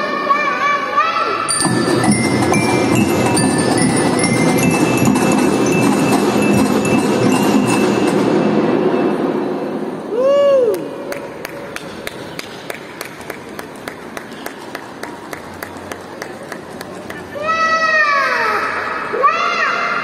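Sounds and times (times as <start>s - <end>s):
marching drum band playing: 1.5s - 9.0s.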